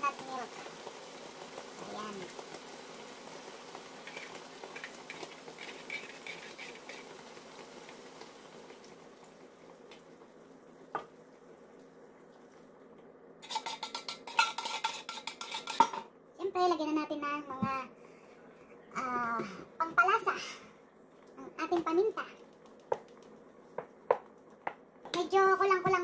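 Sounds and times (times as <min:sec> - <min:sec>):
crabs sizzling in a pan: 0:00.0 - 0:12.7, 0:13.4 - 0:16.1
metal spoon scraping a tin can: 0:04.0 - 0:07.1, 0:13.4 - 0:16.0
metallic clatter against a can: 0:04.0 - 0:07.2, 0:13.4 - 0:16.1.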